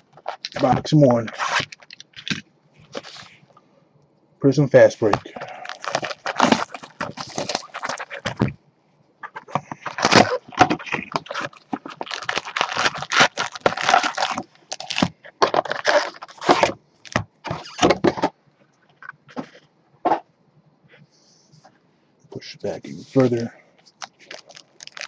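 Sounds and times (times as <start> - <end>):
plastic wrapping crinkling: 0.0 - 3.5, 5.0 - 8.6, 9.2 - 18.1, 23.2 - 25.0.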